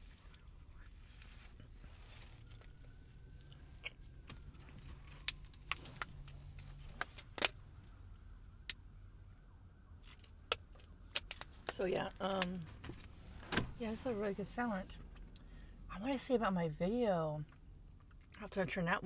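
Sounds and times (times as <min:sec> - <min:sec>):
low steady hum: 0:00.0 - 0:19.0
sharp clicks and crinkles: 0:10.0 - 0:13.1.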